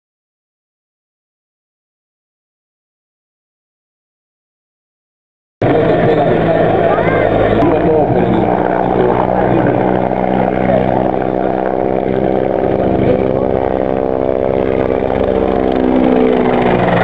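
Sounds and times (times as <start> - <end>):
helicopter flying past: 5.6 - 17.0.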